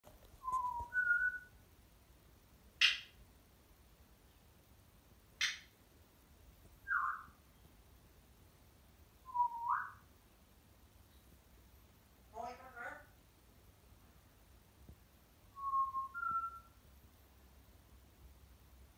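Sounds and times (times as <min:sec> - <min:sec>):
parrot whistling: 0:00.5 - 0:01.5, 0:06.9 - 0:07.3, 0:09.3 - 0:10.0, 0:15.6 - 0:16.7
parrot squawking: 0:12.3 - 0:13.2.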